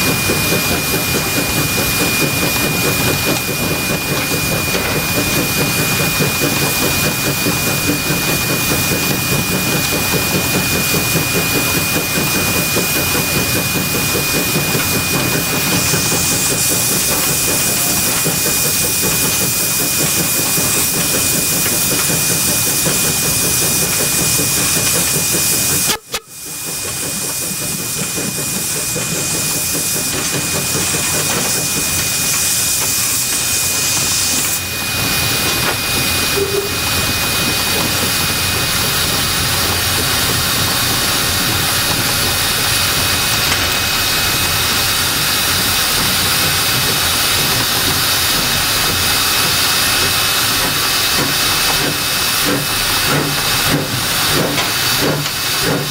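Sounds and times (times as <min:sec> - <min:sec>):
loud hiss of steam: 0:00.0 - 0:55.9
moving train noise: 0:00.0 - 0:55.9
faint whistling tone: 0:36.4 - 0:36.8.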